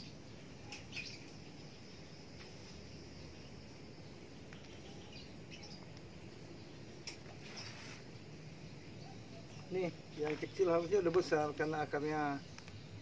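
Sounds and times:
quiet outdoor background: 0.0 - 13.0
rustling scratches of rice husks: 7.4 - 8.2.

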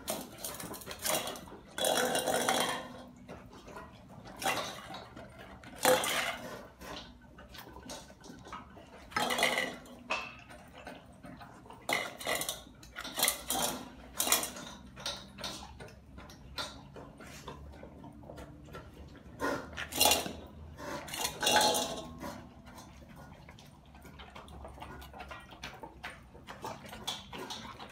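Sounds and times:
kibble clinking in metal bowls: 0.0 - 6.4, 9.0 - 11.0, 11.8 - 15.9, 19.8 - 23.1.

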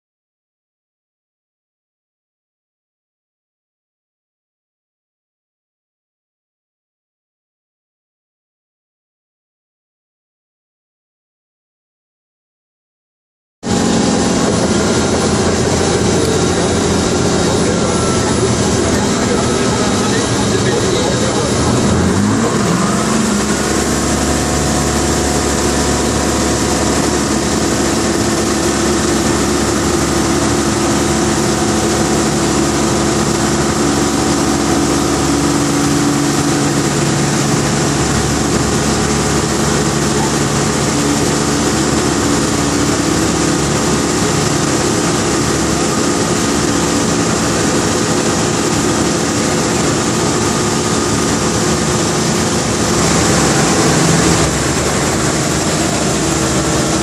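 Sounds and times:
airplane engine and propeller: 13.6 - 57.0.

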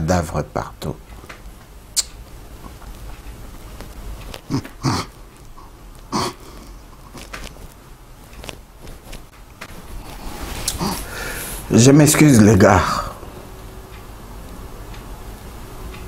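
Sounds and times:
sniffing and breaths: 4.3 - 7.3, 10.0 - 11.7.

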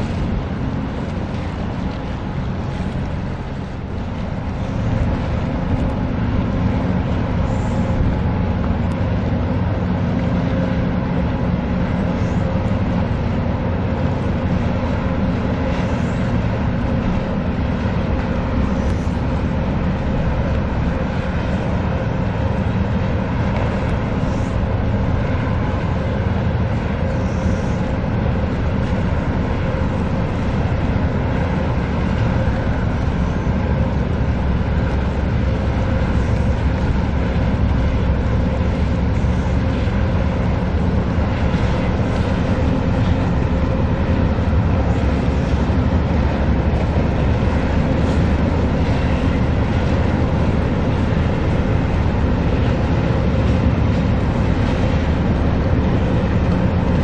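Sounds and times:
ship engine drone: 0.0 - 57.0
wash of noise: 0.0 - 57.0.

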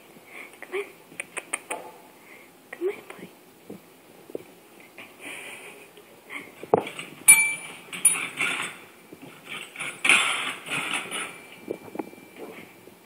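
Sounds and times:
tap bell dinging: 7.3 - 8.3.

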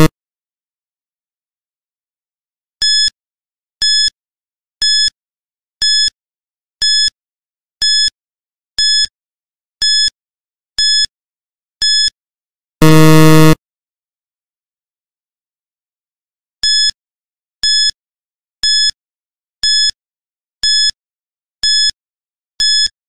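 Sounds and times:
short high electronic beeps: 12.8 - 13.6.

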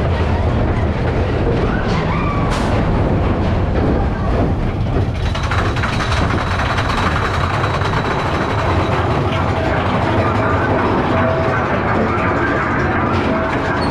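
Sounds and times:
roller coaster cars rumbling: 0.0 - 13.9.

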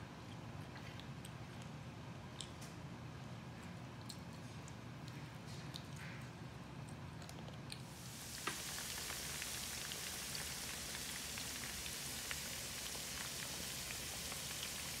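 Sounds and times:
oil crackles and pops: 7.6 - 15.0
ribs sizzling in hot oil: 7.9 - 15.0.

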